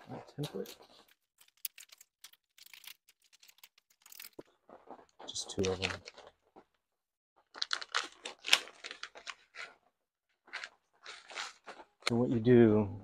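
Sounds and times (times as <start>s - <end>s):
paper packet tearing and crinkling: 7.4s - 9.8s, 10.5s - 12.1s.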